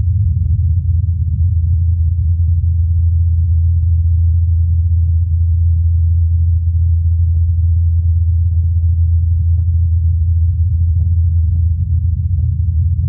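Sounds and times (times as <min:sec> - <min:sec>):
low rotor blade hum: 0:08.7 - 0:13.0.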